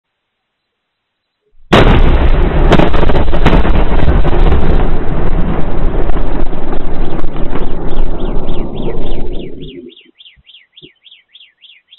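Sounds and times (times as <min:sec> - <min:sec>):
sharp cracks: 0:01.7 - 0:09.8
deep rumble: 0:01.7 - 0:09.9
huge explosion: 0:01.7 - 0:09.9.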